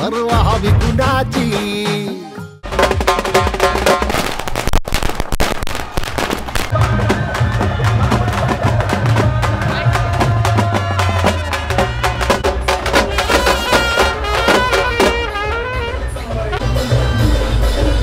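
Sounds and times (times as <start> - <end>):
lively folk song: 0.0 - 4.3, 6.6 - 18.0
fast drumming and percussion: 0.0 - 4.7, 5.8 - 18.0
deep bass line: 0.3 - 1.8.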